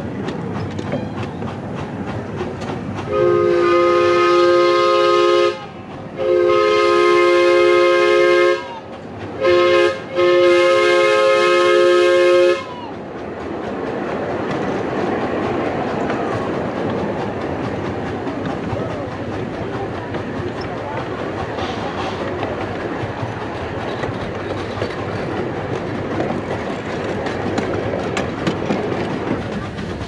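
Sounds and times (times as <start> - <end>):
train wheels clicking over rail joints: 0.0 - 30.0
steam locomotive chime whistle: 3.1 - 8.8, 9.4 - 12.8.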